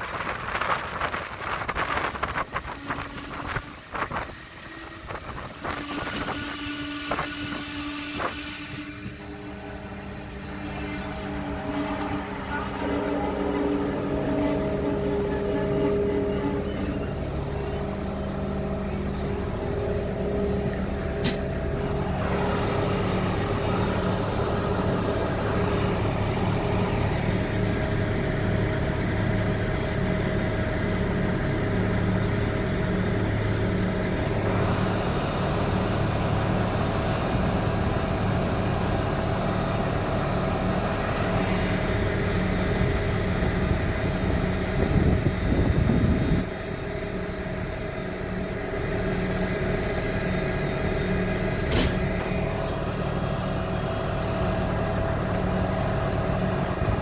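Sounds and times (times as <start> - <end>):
diesel engine humming: 0.0 - 57.0
single click: 21.2 - 21.4.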